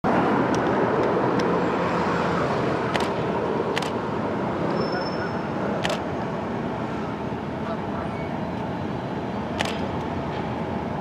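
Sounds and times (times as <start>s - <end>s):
road traffic noise: 0.0s - 11.0s
short sharp clicks: 9.6s - 9.8s.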